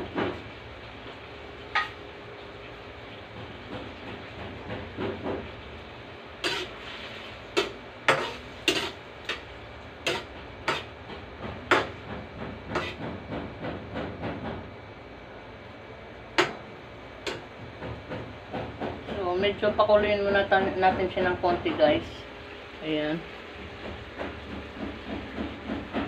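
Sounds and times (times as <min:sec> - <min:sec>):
pan hissing on gas burner: 0:05.0 - 0:13.2
metal spatula scraping a wok: 0:06.4 - 0:09.4, 0:10.0 - 0:10.9, 0:12.7 - 0:13.0.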